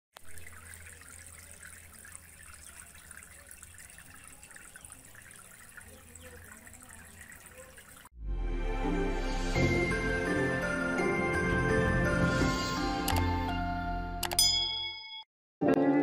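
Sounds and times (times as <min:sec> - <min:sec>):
fountain water splashing and trickling: 0:00.2 - 0:08.2.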